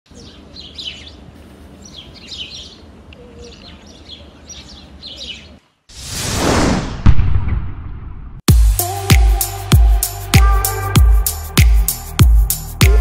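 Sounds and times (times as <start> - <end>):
birds chirping: 0.1 - 5.9
loud whoosh: 5.9 - 8.5.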